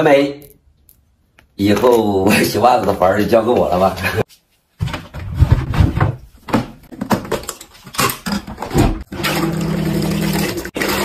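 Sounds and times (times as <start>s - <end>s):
plastic washing machine knocks and scrapes: 4.8s - 7.3s
washing machine humming: 8.7s - 11.0s.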